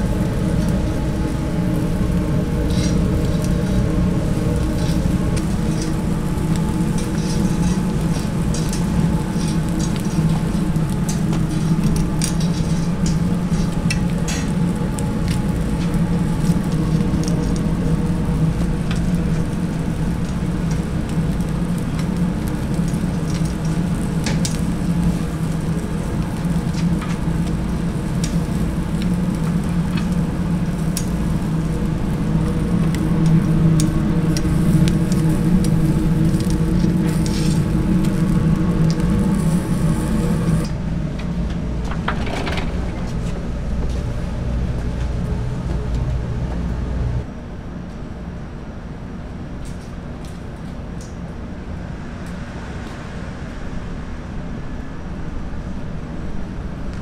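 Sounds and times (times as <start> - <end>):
fish sizzling on a grill: 0.0 - 41.4
steady low hum: 0.0 - 57.0.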